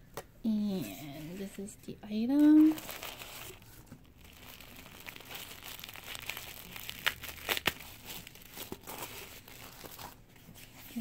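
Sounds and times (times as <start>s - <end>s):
tissue paper crinkling: 2.4s - 11.0s.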